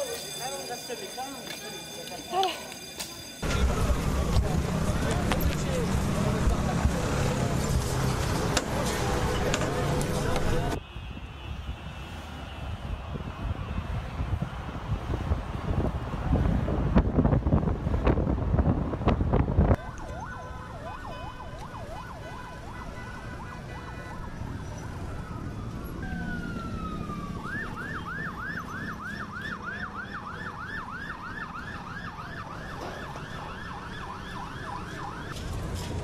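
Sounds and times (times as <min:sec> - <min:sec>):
wind buffeting microphone: 0:12.6 - 0:20.0
siren wailing: 0:19.8 - 0:35.4.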